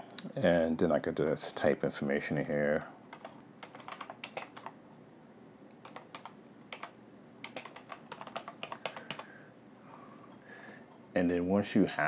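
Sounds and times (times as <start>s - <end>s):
typing on computer keyboard: 3.1s - 4.8s, 5.8s - 9.3s.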